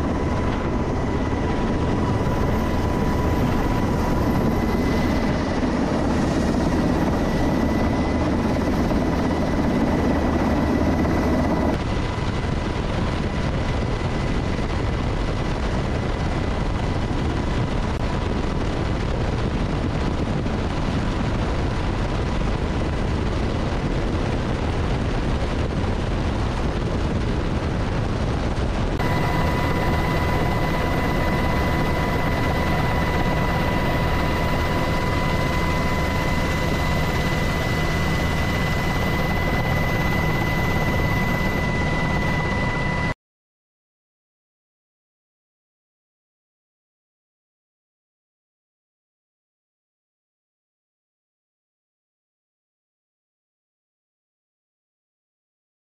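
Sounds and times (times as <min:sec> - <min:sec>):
high whine: 0:00.0 - 0:11.8, 0:28.9 - 0:43.2
helicopter rotor and engine din: 0:00.0 - 0:43.2.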